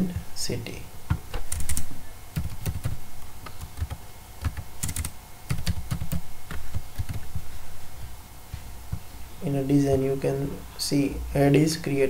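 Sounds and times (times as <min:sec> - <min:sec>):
typing on keyboard: 0:01.3 - 0:07.4.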